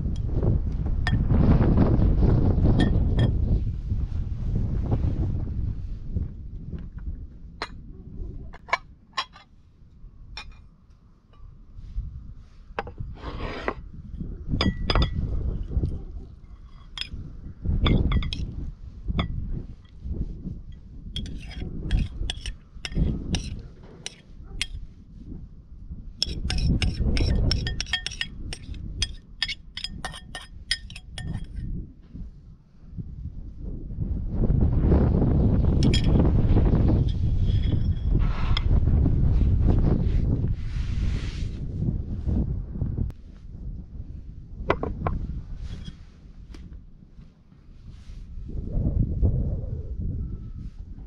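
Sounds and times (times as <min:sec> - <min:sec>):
wind buffeting microphone: 0:00.0 - 0:51.0
metal spoon clinking on ceramic bowl: 0:26.2 - 0:31.6, 0:35.8 - 0:36.2.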